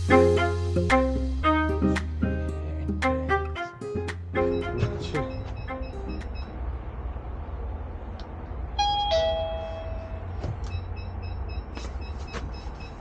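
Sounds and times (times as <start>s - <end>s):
door-entry panel beeping: 4.5s - 6.6s.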